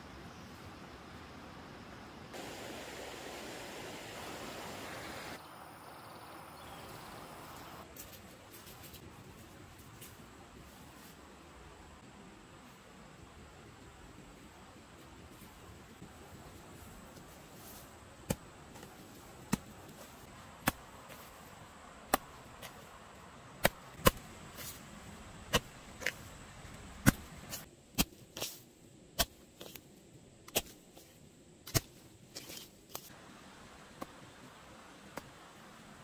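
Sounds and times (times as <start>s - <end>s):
hoe chopping soil: 18.2s - 20.0s, 20.6s - 21.4s, 22.0s - 22.9s, 23.6s - 24.8s, 25.4s - 26.3s, 26.9s - 28.6s.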